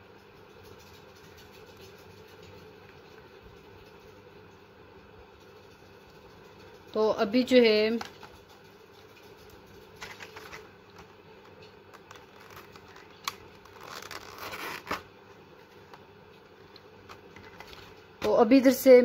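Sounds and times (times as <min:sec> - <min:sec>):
plastic packet crinkling: 0:10.0 - 0:15.0.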